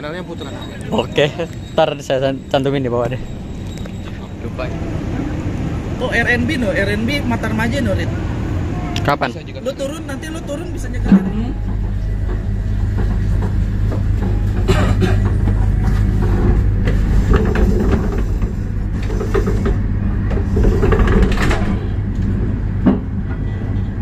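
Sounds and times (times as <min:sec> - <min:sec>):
train rumbling: 0:00.0 - 0:24.0
wheels and couplings knocking: 0:11.0 - 0:23.8.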